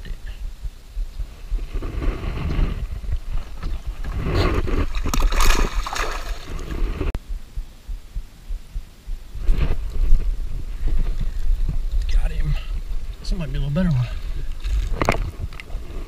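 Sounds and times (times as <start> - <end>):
water splashing: 2.9 - 7.1.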